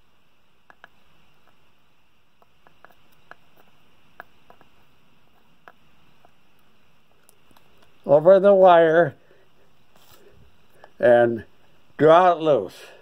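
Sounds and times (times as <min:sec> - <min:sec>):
room hiss: 0:00.0 - 0:13.0
faint small clicks and ticks: 0:00.6 - 0:01.6, 0:02.4 - 0:08.0.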